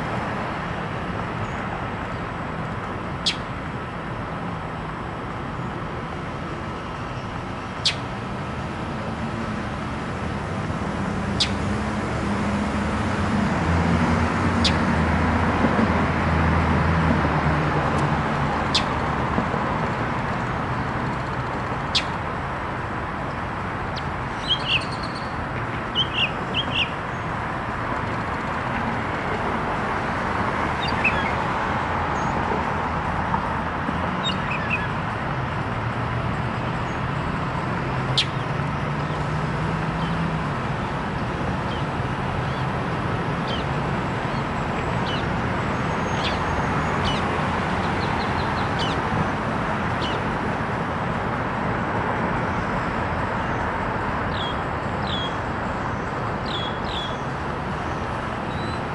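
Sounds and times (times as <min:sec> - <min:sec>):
small birds chirping: 0:03.2 - 0:03.4, 0:07.7 - 0:08.0, 0:11.4 - 0:11.6, 0:21.9 - 0:22.1, 0:24.0 - 0:27.3, 0:30.8 - 0:31.4, 0:38.1 - 0:38.5, 0:43.4 - 0:43.7, 0:44.3 - 0:49.1, 0:50.0 - 0:50.2, 0:54.3 - 0:58.9.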